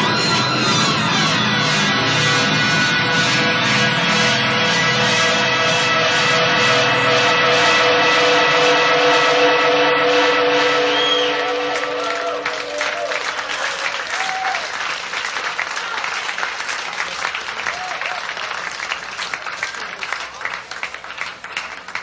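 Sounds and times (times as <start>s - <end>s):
held musical note: 0.0s - 14.7s
audience applauding: 8.8s - 22.0s
whoops: 10.5s - 14.8s, 17.7s - 18.4s.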